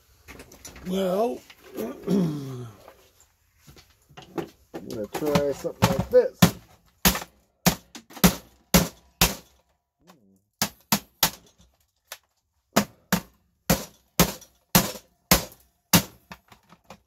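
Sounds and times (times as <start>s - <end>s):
hammer knocking on plastic: 4.3s - 9.4s.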